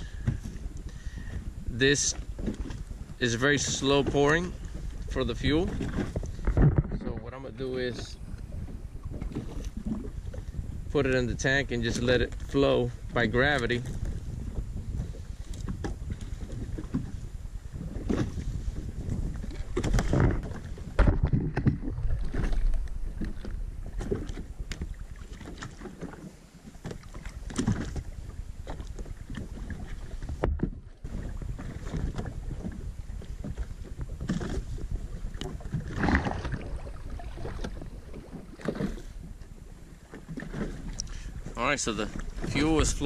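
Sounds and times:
water slapping boat hull: 0:00.0 - 0:43.0
wind buffeting microphone: 0:00.0 - 0:43.0.

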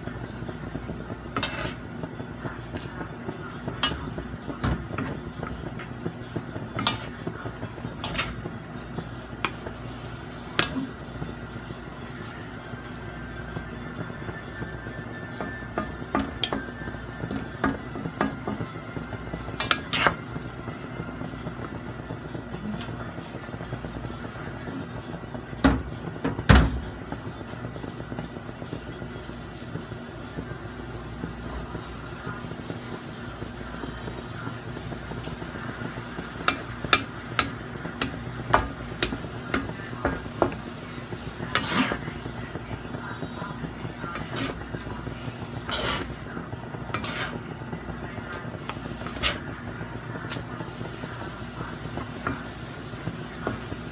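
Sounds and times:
spatula scraping a wok: 0:00.2 - 0:02.0, 0:06.6 - 0:07.3, 0:08.0 - 0:08.5, 0:19.4 - 0:20.3, 0:35.7 - 0:47.6, 0:48.3 - 0:49.6.

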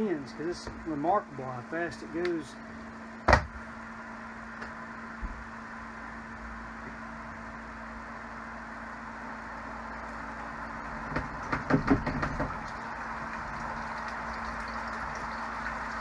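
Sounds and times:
spin dryer motor humming: 0:00.0 - 0:16.0
water pouring into glass bowl: 0:12.5 - 0:16.0.

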